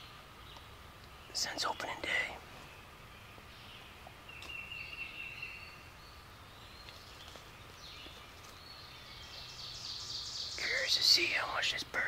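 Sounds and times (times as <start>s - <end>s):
faint background hiss: 0.0s - 12.0s
songbird falling chirps: 3.7s - 11.4s.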